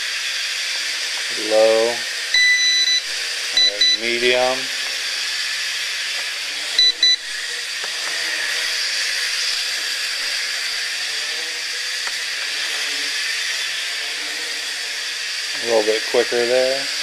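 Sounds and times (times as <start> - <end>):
quadcopter propellers whining: 0.0 - 17.0
short electronic beeps: 2.4 - 4.1, 6.8 - 7.3.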